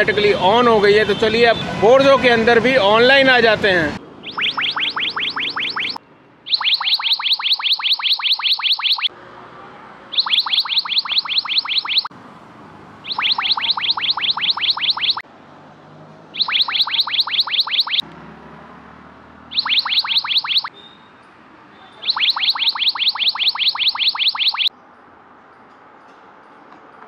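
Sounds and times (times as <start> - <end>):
phone alert falling electronic chirps: 4.2 - 9.1, 10.2 - 12.1, 13.1 - 15.2, 16.4 - 18.0, 19.5 - 20.7, 22.0 - 24.7.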